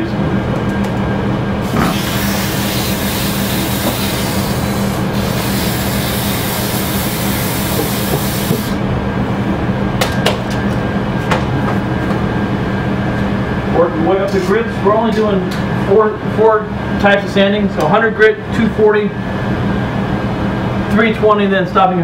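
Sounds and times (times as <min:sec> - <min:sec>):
lathe motor humming: 0:01.5 - 0:08.9
sandpaper hissing on wood: 0:01.8 - 0:08.8.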